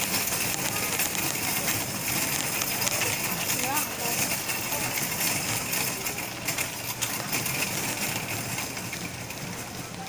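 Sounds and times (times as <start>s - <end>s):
cart wheels rumbling: 0.0s - 10.0s.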